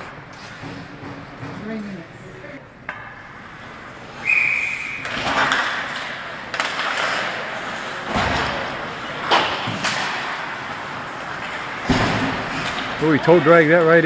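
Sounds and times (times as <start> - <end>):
sticks and puck clacking: 0.0 - 2.0, 2.8 - 14.0
skates scraping on ice: 3.3 - 14.0
short high whistle tone: 4.2 - 5.0.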